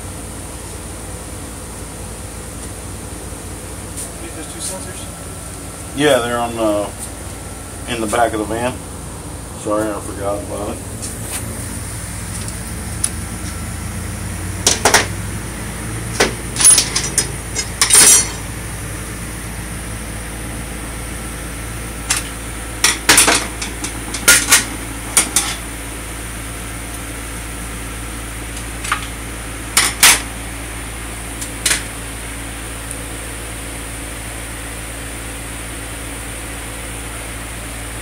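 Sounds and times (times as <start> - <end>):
shop fan hum: 0.0 - 38.0
metal tools clanking on metal: 16.2 - 18.5, 22.1 - 25.6.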